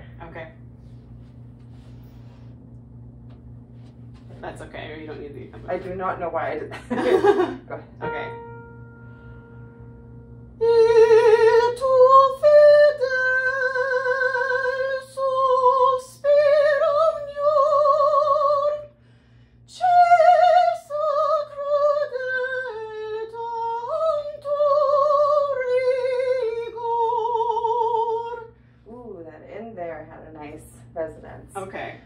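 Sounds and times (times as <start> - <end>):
woman singing held notes with vibrato: 10.5 - 18.9.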